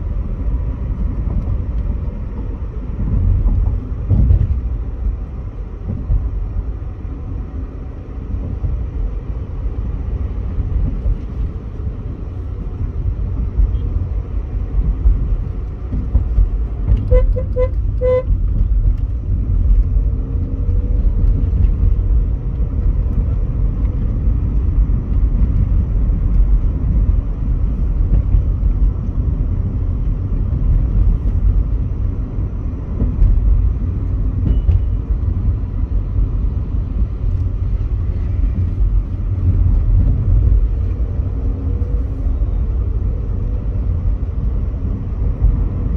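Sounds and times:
car engine and road noise: 0:00.0 - 0:45.9
vehicle horn toots: 0:17.0 - 0:18.4.

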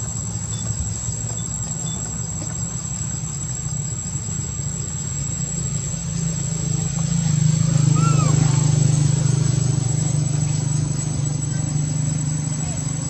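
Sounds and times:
high-pitched insect drone: 0:00.0 - 0:13.0
low engine hum: 0:00.0 - 0:13.0.

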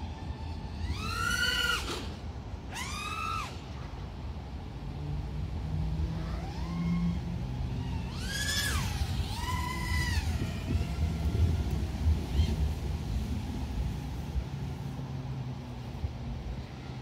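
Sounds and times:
drone motors whining: 0:00.0 - 0:04.0, 0:05.9 - 0:14.3.

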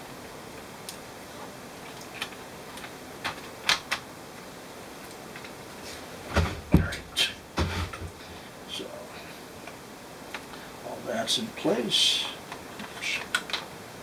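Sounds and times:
knocks and thumps: 0:06.3 - 0:08.2.

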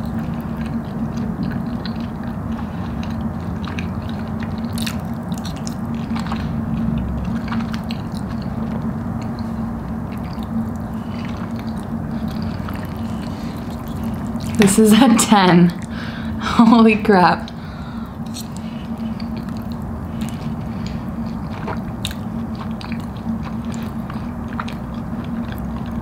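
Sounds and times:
person chewing food: 0:00.0 - 0:15.0, 0:15.7 - 0:16.4, 0:17.4 - 0:26.0
low hum: 0:00.0 - 0:26.0.

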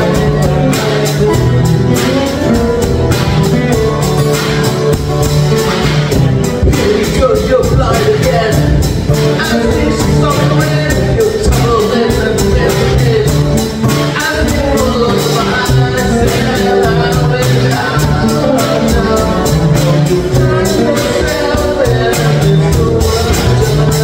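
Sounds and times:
drum kit with hi-hat: 0:00.0 - 0:24.0
man singing lead vocal: 0:00.0 - 0:24.0
strummed acoustic guitars: 0:00.0 - 0:24.0.

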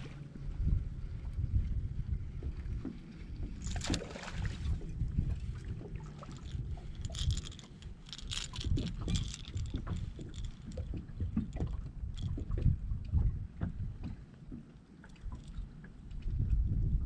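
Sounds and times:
low rumble: 0:00.0 - 0:14.3
fish splashing at the surface: 0:03.6 - 0:04.8.

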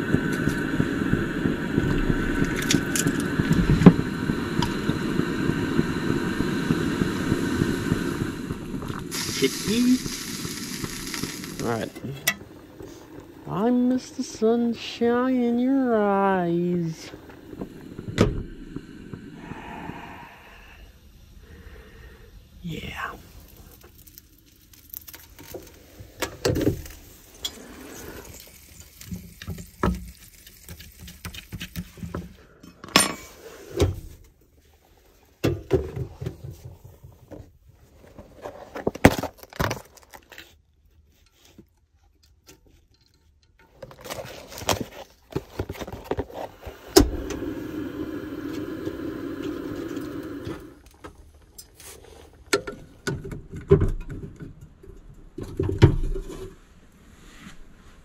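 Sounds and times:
steady rushing noise: 0:00.0 - 0:20.9.

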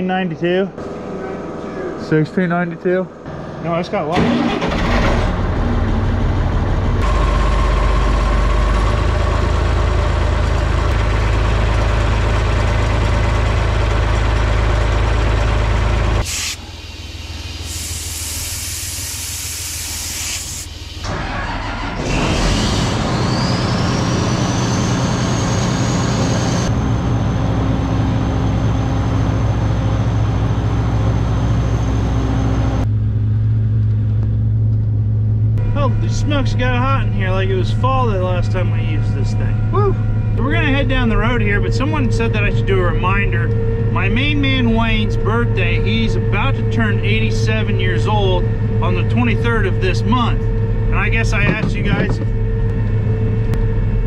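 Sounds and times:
high whine rising in pitch: 0:00.0 - 0:04.1, 0:22.9 - 0:54.0
diesel engine running: 0:00.0 - 0:54.0
hiss: 0:16.2 - 0:21.1.

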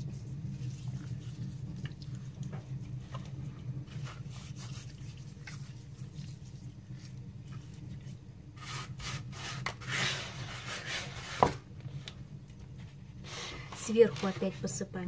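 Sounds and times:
hands rubbing salt into fish: 0:00.0 - 0:03.0, 0:03.8 - 0:11.3
steady low hum: 0:00.0 - 0:15.0
hand scraping salt on cutting board: 0:03.9 - 0:07.6, 0:08.6 - 0:11.6.

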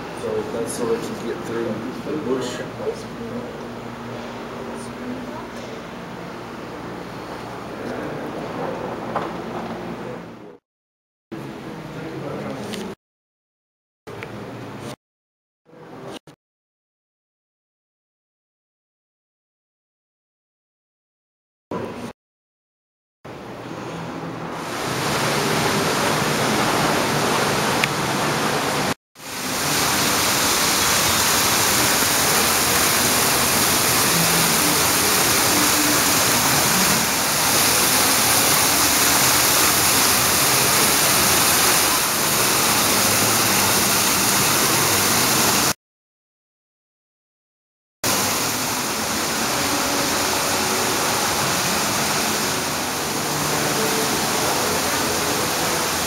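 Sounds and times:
loud rushing noise: 0:24.4 - 0:45.8, 0:48.1 - 0:56.0.

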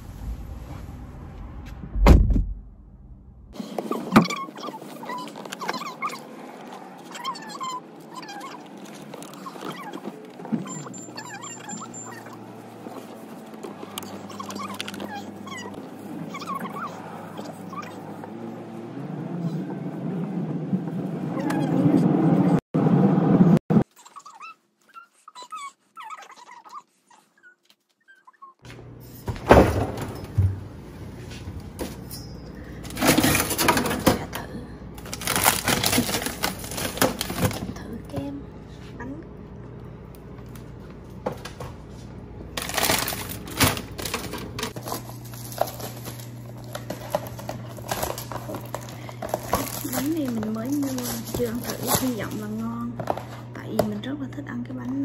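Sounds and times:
car cabin road rumble: 0:00.0 - 0:03.6
food packages rustling and crinkling: 0:04.7 - 0:10.6, 0:35.0 - 0:38.2, 0:41.4 - 0:53.5.

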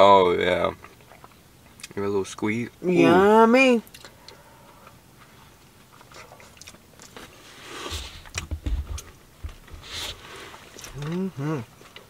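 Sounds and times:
chewing and wet mouth sounds: 0:00.6 - 0:02.0, 0:03.8 - 0:07.5, 0:09.8 - 0:12.0.

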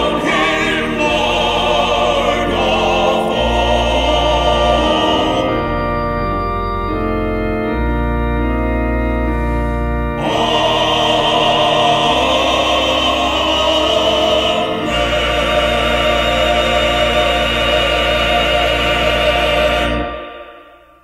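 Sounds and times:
male vocal quartet singing: 0:00.0 - 0:05.7, 0:10.2 - 0:20.8
organ chords: 0:00.0 - 0:21.0.

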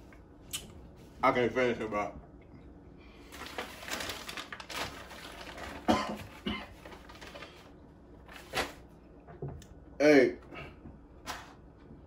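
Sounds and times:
man coughing and gagging: 0:05.8 - 0:06.8.

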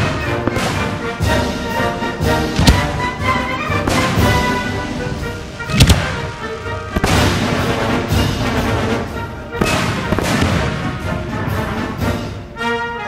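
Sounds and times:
fireworks bangs: 0:00.0 - 0:11.6
music track: 0:00.0 - 0:13.0.

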